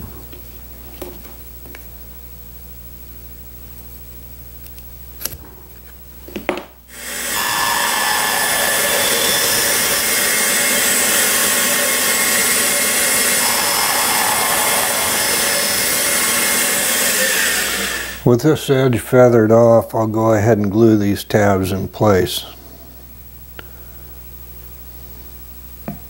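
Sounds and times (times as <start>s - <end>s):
band saw running: 6.9s - 18.9s.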